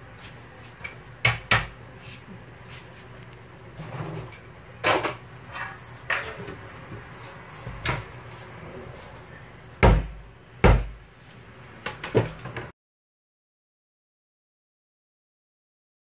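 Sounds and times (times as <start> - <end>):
kitchen knocks and clatters: 0.8 - 1.8, 4.0 - 8.3, 9.8 - 11.0, 11.8 - 12.7.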